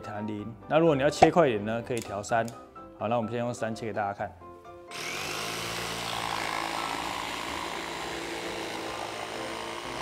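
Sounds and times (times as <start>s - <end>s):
jigsaw cutting wood: 4.9s - 10.0s.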